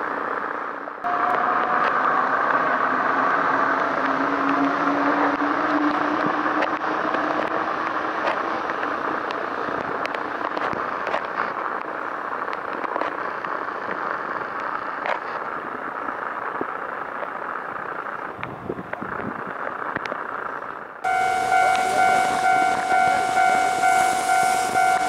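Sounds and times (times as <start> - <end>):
monorail train rolling on rubber tyres: 0.0 - 25.0
rain ticking: 5.3 - 25.0
low hum: 21.0 - 25.0.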